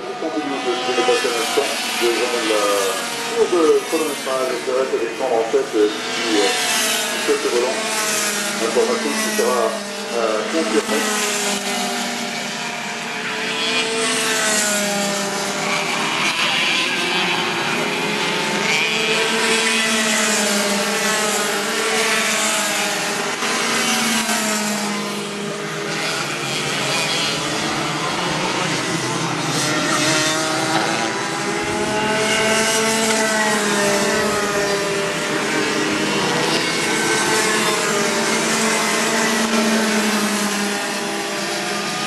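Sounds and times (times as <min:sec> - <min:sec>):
go-kart engines racing: 0:00.0 - 0:42.0.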